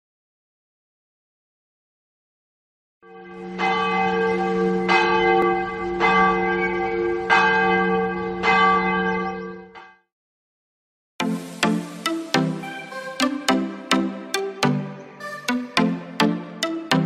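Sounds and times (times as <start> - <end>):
large church bell tolling: 3.0 - 9.9.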